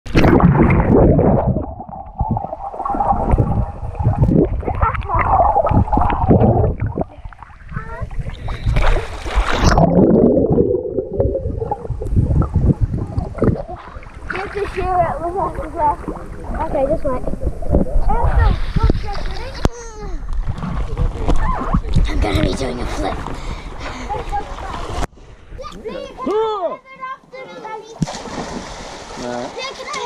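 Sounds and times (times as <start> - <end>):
muffled water sloshing and gurgling: 0.1 - 26.2.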